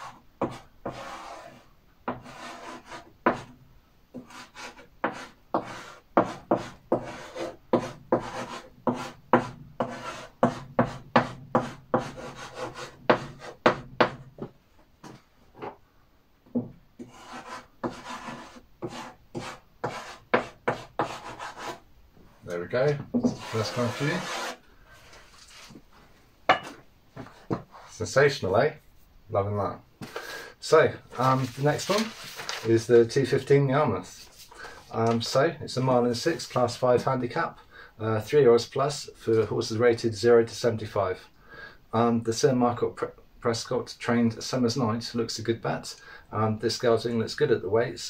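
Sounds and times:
chalk tapping and scraping: 0:00.0 - 0:15.8, 0:16.5 - 0:21.8, 0:22.9 - 0:25.8, 0:27.2 - 0:28.0.

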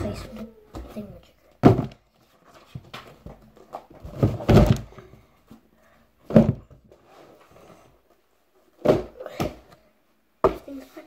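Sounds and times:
dull thuds of objects set down: 0:01.6 - 0:02.0, 0:02.8 - 0:05.0.

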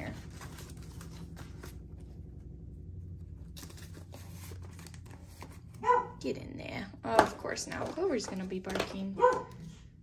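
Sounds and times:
paper bills rustling: 0:00.0 - 0:02.0
washing machine hum: 0:00.0 - 0:10.0.

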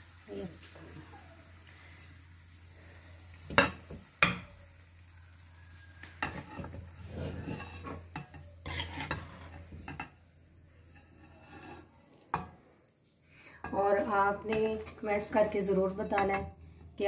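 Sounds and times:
oil sizzling: 0:00.0 - 0:17.0.

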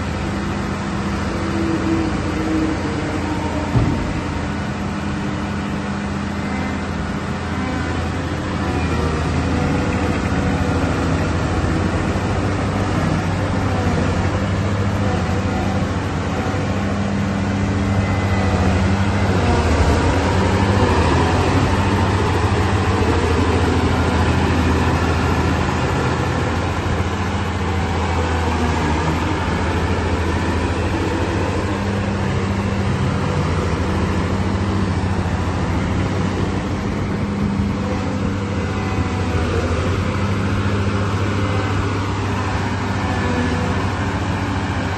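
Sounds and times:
diesel engine running: 0:00.0 - 0:44.9.

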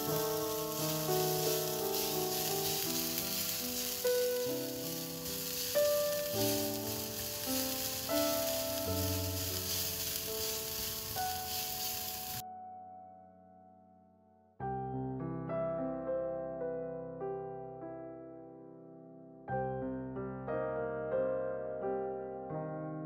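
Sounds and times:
background music: 0:00.0 - 0:12.4
shallots and garlic sizzling in oil: 0:00.0 - 0:12.4
spatula stirring in a pan: 0:00.1 - 0:12.4.

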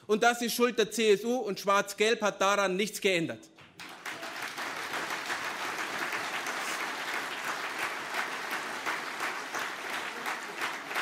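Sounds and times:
crowd applauding: 0:03.6 - 0:11.0.

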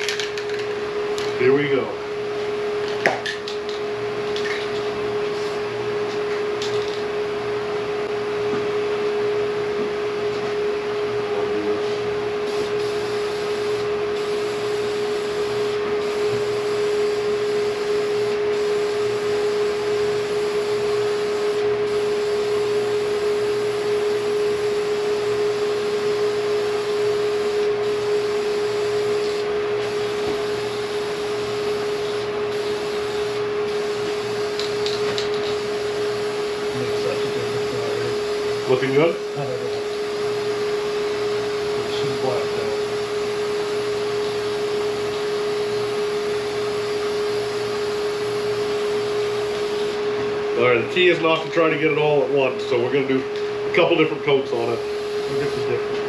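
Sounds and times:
steady hum: 0:00.0 - 0:56.0.

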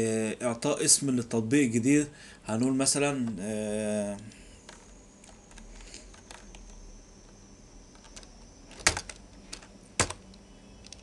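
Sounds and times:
faint steady hum: 0:00.0 - 0:11.0
keyboard and mouse clicks: 0:04.1 - 0:06.8, 0:07.9 - 0:11.0.

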